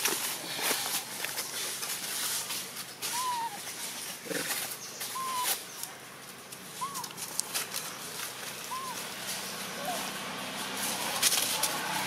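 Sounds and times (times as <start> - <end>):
rustling in dry leaves: 0.0 - 12.0
baby monkey coo calls: 3.1 - 3.6, 5.1 - 5.6, 6.8 - 7.2, 8.6 - 9.0.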